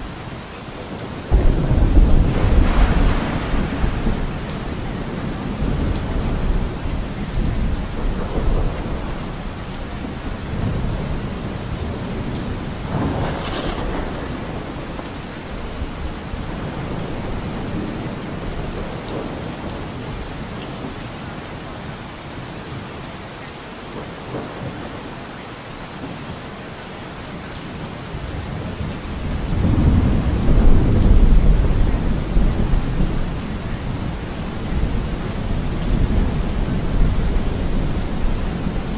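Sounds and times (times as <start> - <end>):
steady rain falling: 0.0 - 38.9
thunder rumbling: 1.3 - 20.3, 28.3 - 38.9.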